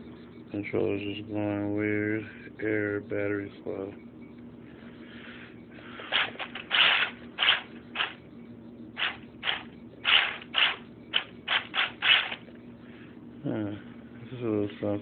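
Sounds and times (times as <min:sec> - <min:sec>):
rc car motor whirring: 0:06.1 - 0:08.2, 0:09.0 - 0:12.4.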